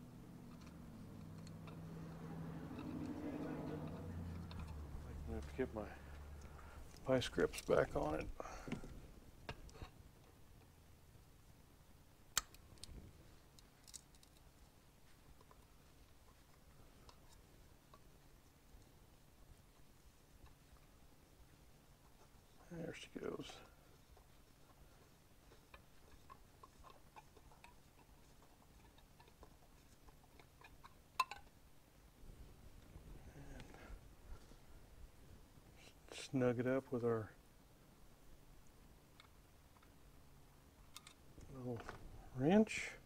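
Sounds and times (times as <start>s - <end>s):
faint metallic handling clicks: 40.8s - 41.2s.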